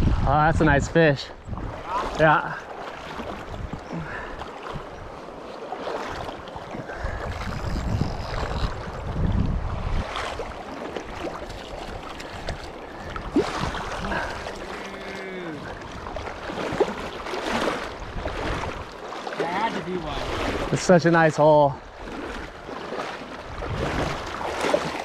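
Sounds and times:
wind buffeting microphone: 0:00.0 - 0:02.2, 0:03.0 - 0:05.4, 0:06.1 - 0:19.0, 0:23.3 - 0:25.0
water splashes: 0:00.0 - 0:25.0
river water rushing: 0:01.6 - 0:07.5, 0:09.7 - 0:25.0.

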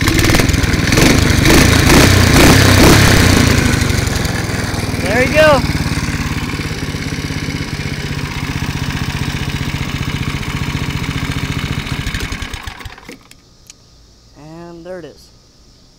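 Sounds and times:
small engine running: 0:00.0 - 0:13.2.

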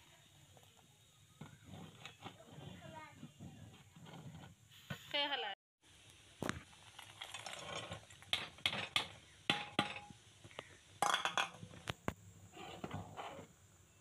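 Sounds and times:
metal spoon scraping a pot: 0:01.4 - 0:04.6.

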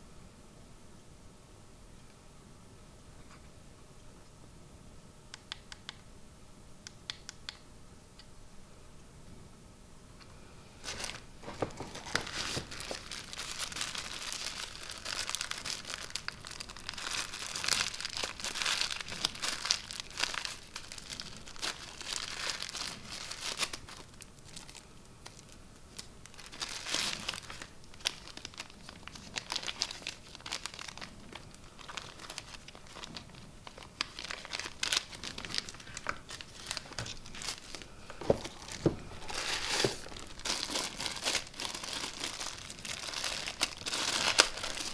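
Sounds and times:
plastic bags crinkling: 0:10.8 - 0:44.9.

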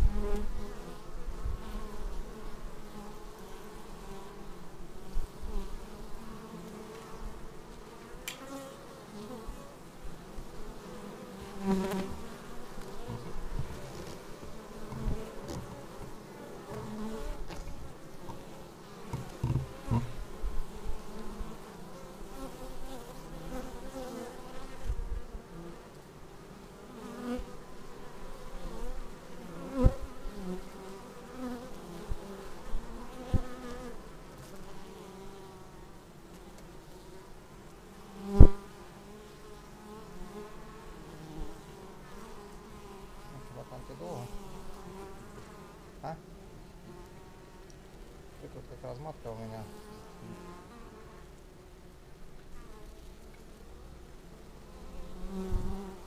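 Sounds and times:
bees buzzing: 0:00.0 - 0:56.0
sharp knocks: 0:19.1 - 0:20.2.

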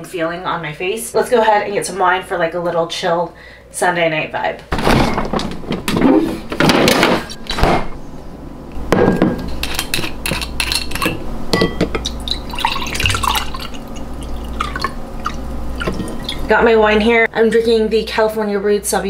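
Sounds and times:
rustling and rattling: 0:04.7 - 0:08.0
glass clinks and taps: 0:11.6 - 0:12.0
wine pouring into glass: 0:12.1 - 0:16.5.

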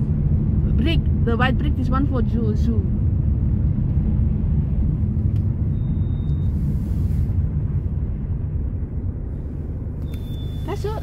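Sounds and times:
car engine and tyres rumble: 0:00.0 - 0:11.0.

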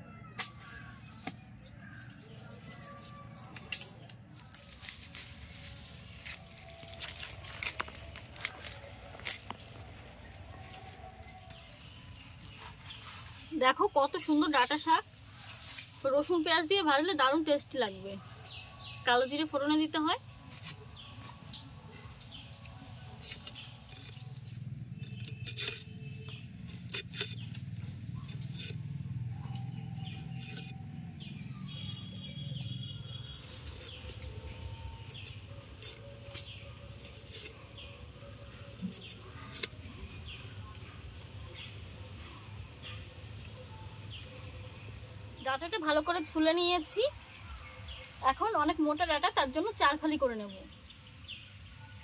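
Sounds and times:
blade scraping stalk skin: 0:00.4 - 0:09.9, 0:23.1 - 0:40.4.

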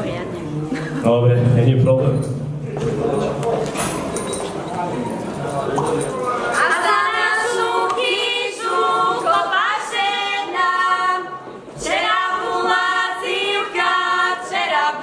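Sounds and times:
women singing together unaccompanied: 0:06.5 - 0:15.0.

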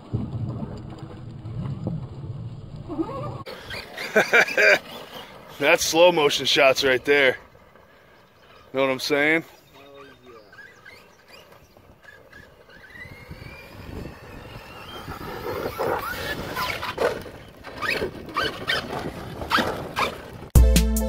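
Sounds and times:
toy truck driving over gravel: 0:03.4 - 0:20.5
electric motor whining: 0:09.6 - 0:18.8
loud music: 0:20.6 - 0:21.0.

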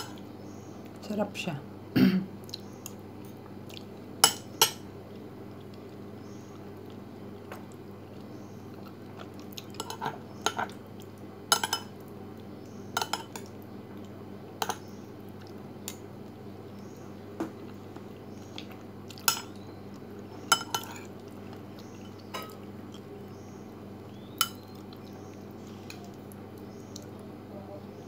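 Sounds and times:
steady low hum: 0:00.0 - 0:28.0
metal spoon clinking on ceramic bowl: 0:11.5 - 0:11.9.

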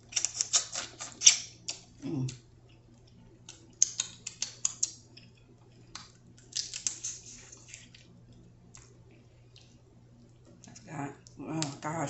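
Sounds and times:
crab shell crackling and clicking: 0:03.0 - 0:08.9.

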